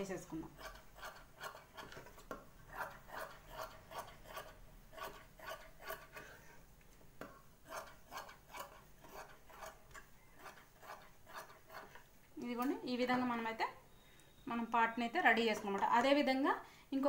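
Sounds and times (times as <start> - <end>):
scissors cutting cloth: 0.4 - 6.4, 7.6 - 12.8.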